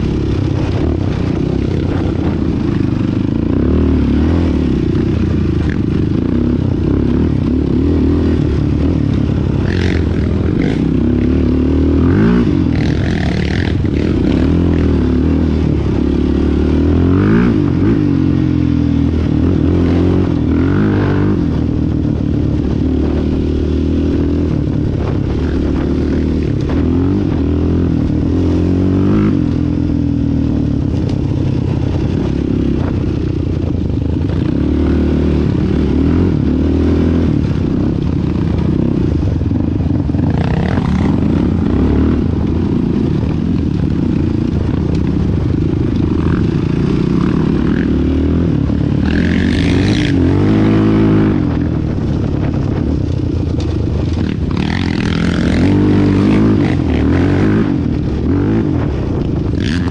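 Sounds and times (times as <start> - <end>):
quad engine revving: 0.0 - 22.0, 34.3 - 53.0, 53.6 - 59.9.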